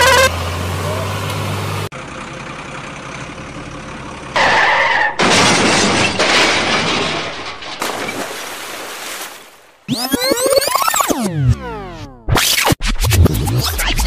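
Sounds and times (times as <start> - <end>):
skid screech: 4.4 - 5.3
crashing and shattering: 5.1 - 9.6.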